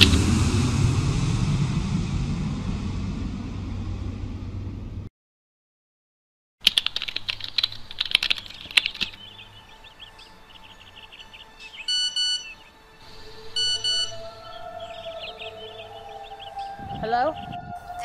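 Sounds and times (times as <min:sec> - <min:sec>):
sharp clicks and chirps: 0:06.6 - 0:10.3
faint bird chirps: 0:08.2 - 0:18.0
mobile phone ringing: 0:11.9 - 0:12.6, 0:13.6 - 0:14.1.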